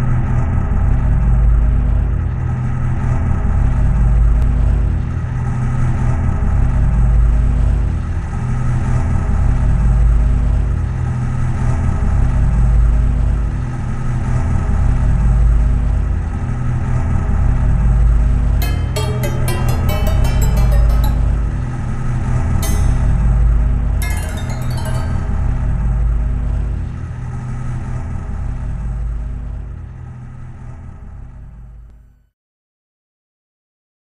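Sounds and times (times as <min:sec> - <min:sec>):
faint held tones: 0:18.6 - 0:22.0, 0:22.6 - 0:25.7.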